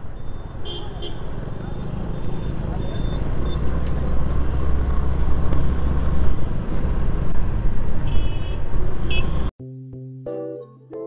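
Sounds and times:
traffic: 0.0s - 9.6s
horn beeps: 0.1s - 3.7s.

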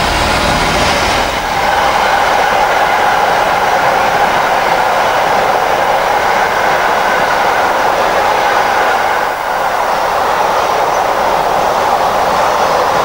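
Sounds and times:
train wheels rolling on rails: 0.0s - 13.0s.

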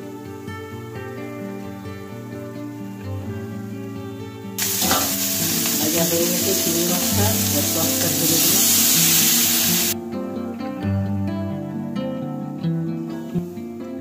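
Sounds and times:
acoustic guitar music: 0.0s - 14.0s
liquid poured into hot pan: 4.6s - 10.0s
prawns sizzling in hot oil: 4.6s - 10.0s.

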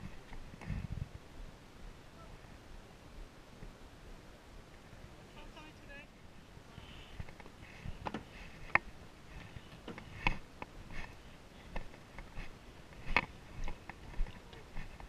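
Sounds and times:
footsteps on wooden boardwalk: 7.3s - 15.0s.

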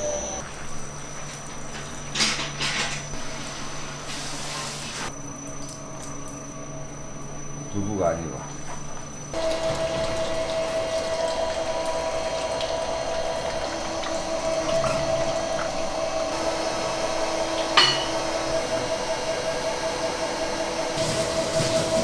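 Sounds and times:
electric machinery hum: 0.0s - 22.0s
liquid being pumped: 9.3s - 22.0s.

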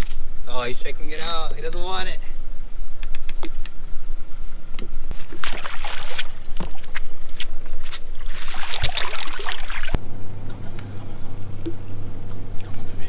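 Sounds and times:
steady low hum: 0.0s - 13.0s
water slapping against boat hull: 5.2s - 6.8s, 8.2s - 10.0s.

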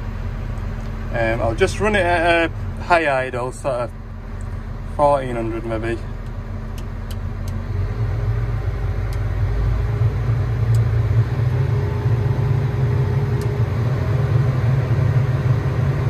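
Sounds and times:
excavator diesel engine revving: 5.0s - 16.0s.

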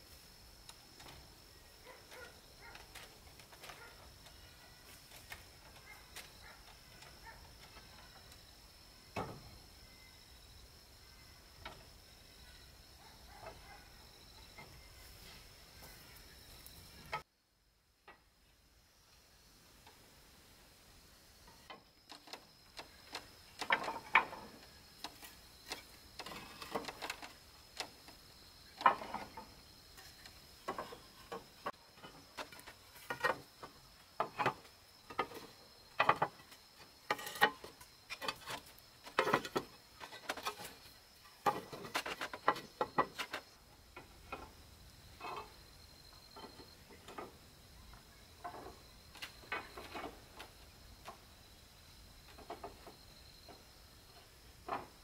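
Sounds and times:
clay roof tiles clinking: 0.7s - 9.6s, 21.4s - 51.3s, 52.2s - 55.0s.

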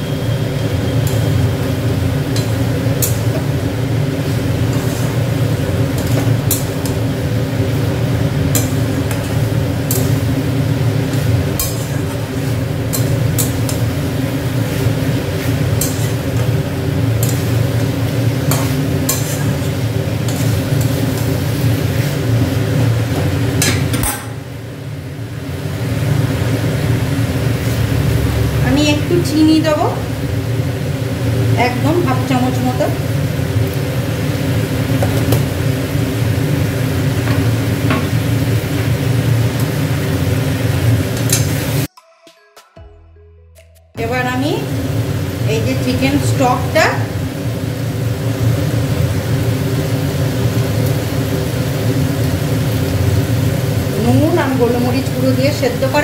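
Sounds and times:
metal spatula scraping a pan: 4.6s - 5.3s, 11.2s - 13.9s, 14.6s - 22.3s.

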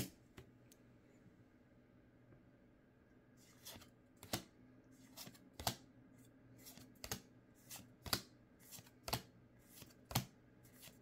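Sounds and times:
cards sliding with soft swish: 3.4s - 5.8s.

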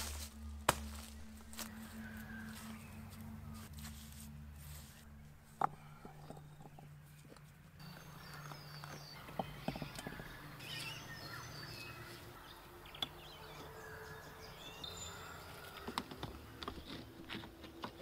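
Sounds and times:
birds chirping: 0.0s - 3.8s, 5.5s - 18.0s
rocks knocking and scraping: 5.5s - 7.4s.

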